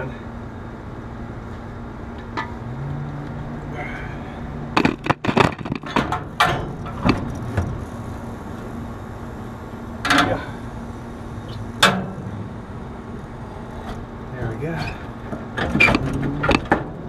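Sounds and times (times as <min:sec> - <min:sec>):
steady low hum: 0:00.0 - 0:17.0
metal clanks and knocks: 0:04.8 - 0:07.7, 0:10.0 - 0:10.4, 0:11.8 - 0:12.3, 0:14.8 - 0:16.9.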